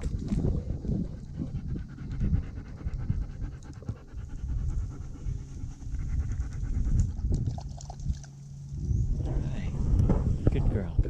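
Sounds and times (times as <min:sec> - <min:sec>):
dog panting: 0:00.3 - 0:07.4.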